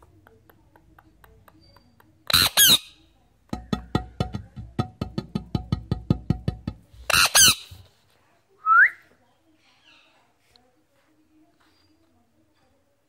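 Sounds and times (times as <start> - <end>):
parakeet screeching: 2.3 - 3.0, 7.1 - 7.6.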